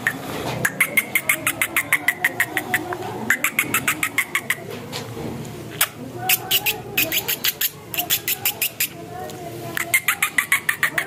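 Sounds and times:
bird clicking call notes: 0.0 - 4.6.

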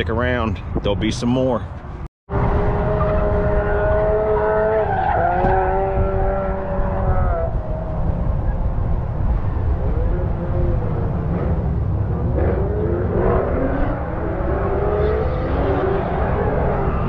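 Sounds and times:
wind rumble on microphone: 0.0 - 17.0
car tyres squealing: 2.6 - 8.7, 12.4 - 17.0.

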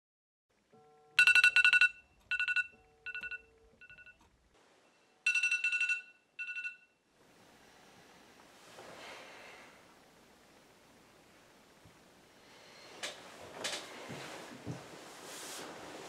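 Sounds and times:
phone beeping tone: 0.8 - 4.2, 4.9 - 7.0.

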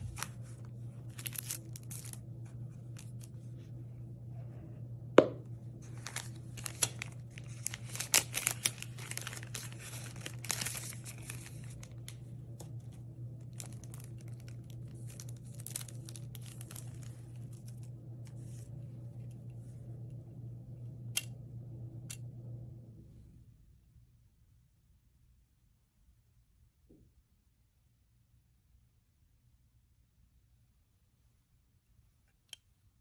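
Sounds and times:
plastic film crinkling and tearing: 0.0 - 2.3, 5.8 - 18.6.

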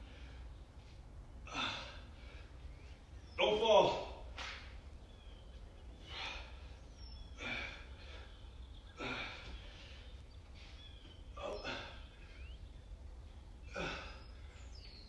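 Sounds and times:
man breathing hard: 0.0 - 3.0, 5.9 - 12.4.

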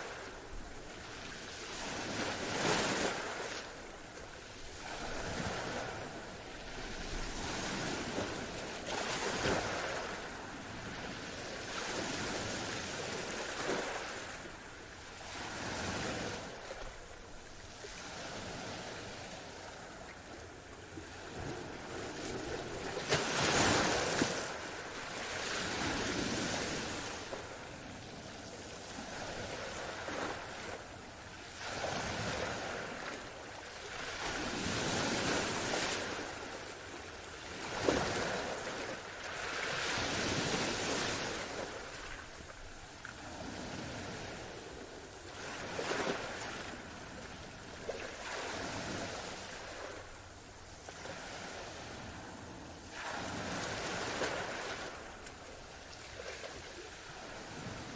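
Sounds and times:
ocean waves breaking: 21.3 - 27.9, 51.0 - 55.4.

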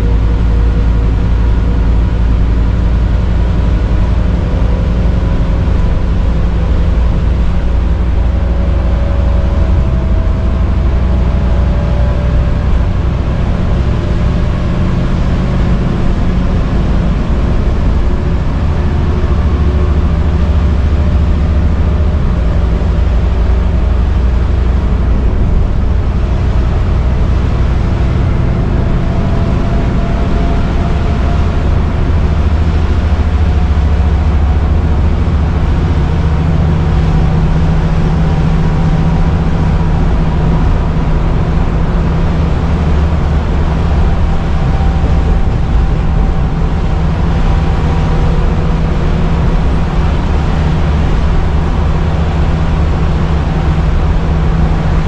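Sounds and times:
bus engine low rumble: 0.0 - 55.0.

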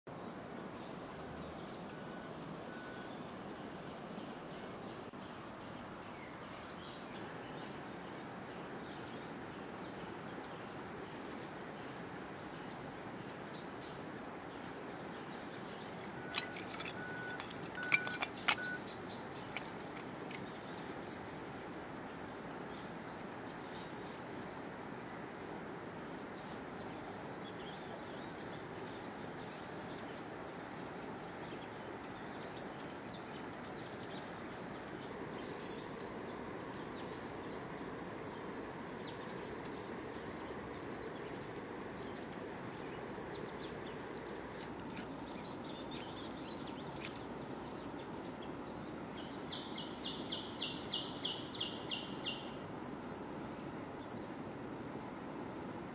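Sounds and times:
faint bird chirps: 1.5 - 7.8, 14.6 - 23.0.

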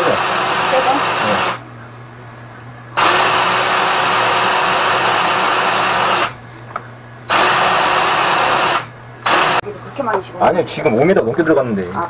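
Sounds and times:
drain cleaning machine motor whine: 0.0 - 1.7, 2.9 - 6.4, 7.3 - 9.7.

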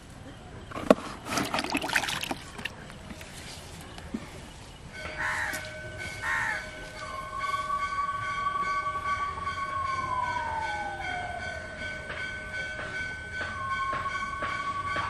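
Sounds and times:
bird cawing: 5.2 - 6.8.

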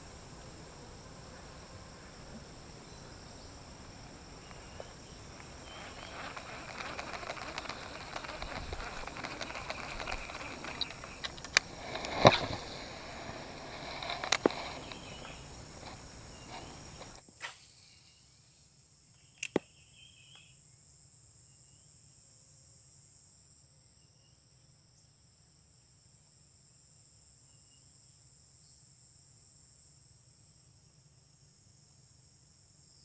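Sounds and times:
noisy rustle: 0.0 - 18.8
insects droning: 0.0 - 33.0
sharp clicks: 5.3 - 17.2, 19.4 - 19.7.

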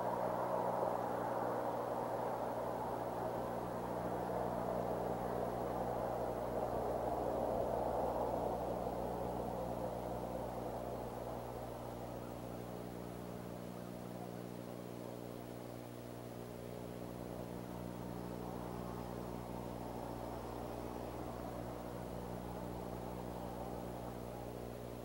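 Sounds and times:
steady rushing noise: 0.0 - 14.7
low electrical hum: 0.0 - 25.0.

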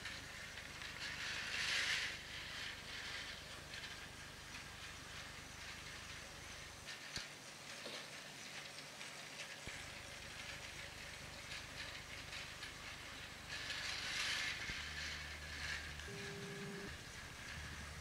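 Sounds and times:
wheels clicking over track joints: 0.0 - 18.0
toy train motor running: 10.5 - 18.0.

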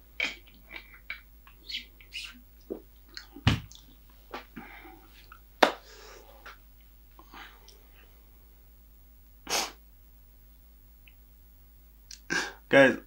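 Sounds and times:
lip smacks and mouth clicks: 0.2 - 4.0, 12.1 - 12.3
low thump: 3.4 - 3.7.

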